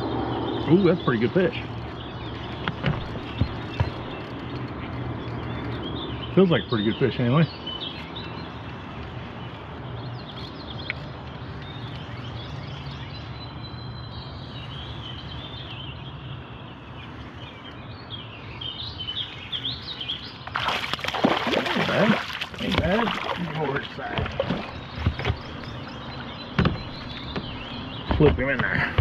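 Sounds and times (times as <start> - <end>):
birds chirping: 0.0 - 29.0
fish splashing in water: 20.4 - 25.7.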